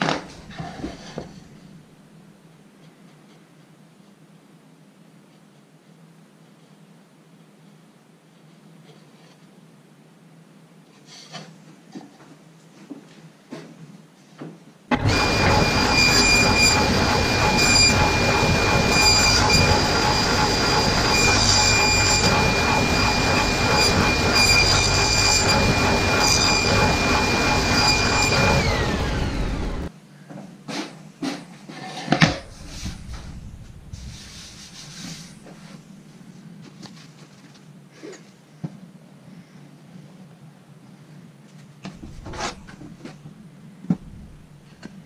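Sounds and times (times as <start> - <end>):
table saw whining: 14.9 - 29.9, 32.3 - 35.5, 42.0 - 42.9.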